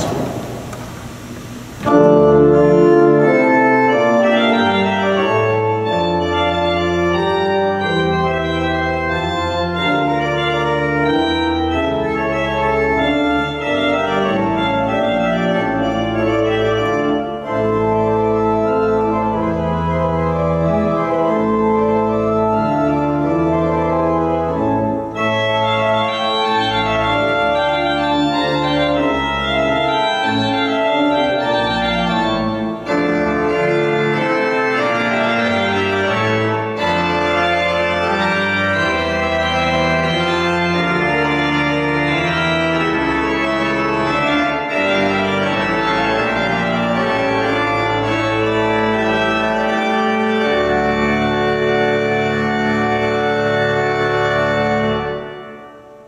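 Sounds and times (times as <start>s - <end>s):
church organ playing chords: 0.0s - 56.0s.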